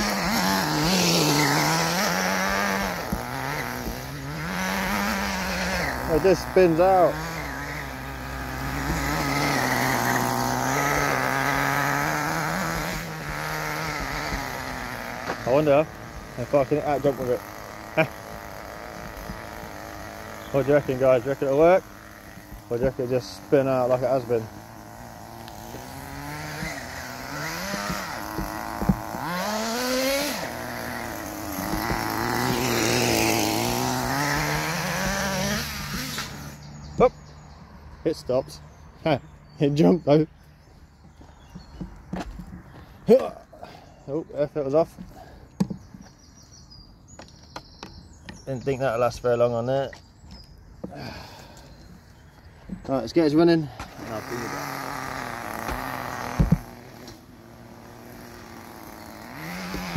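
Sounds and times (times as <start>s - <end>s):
small nitro engine running: 0.0s - 36.7s, 53.1s - 59.9s.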